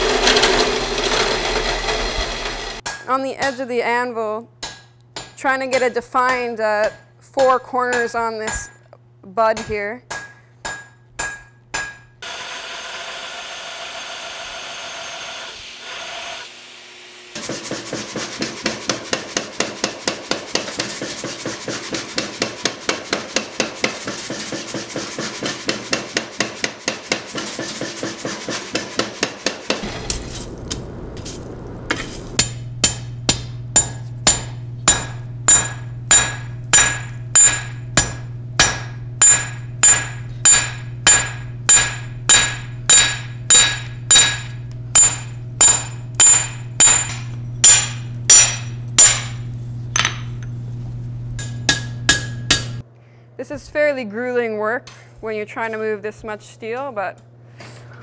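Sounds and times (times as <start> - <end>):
steady mechanical noise: 0.0 - 2.8, 27.7 - 52.8
power hammer pounding steel: 17.4 - 31.1, 31.9 - 49.4, 51.4 - 52.8
steady hum: 29.7 - 53.9
hand hammer ringing on anvil: 33.8 - 49.3.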